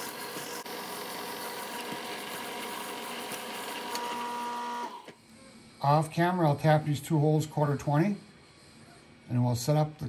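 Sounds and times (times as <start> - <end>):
drill cutting hiss: 0.0 - 5.2
milling machine motor hum and whine: 0.0 - 5.2.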